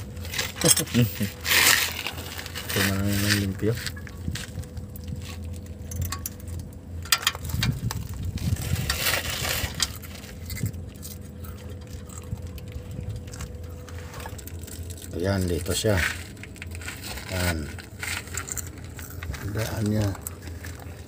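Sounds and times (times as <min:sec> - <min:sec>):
faint steady hum: 0:00.0 - 0:21.0
small metallic clicks and clinks: 0:05.8 - 0:07.8.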